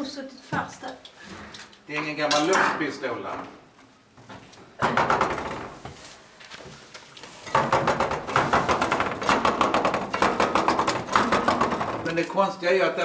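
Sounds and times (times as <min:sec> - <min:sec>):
loose metal objects rattling: 0:07.5 - 0:12.5.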